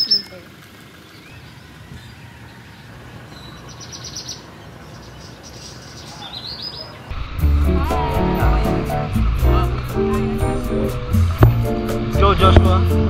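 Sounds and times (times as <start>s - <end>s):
small birds chirping: 0.0s - 7.2s.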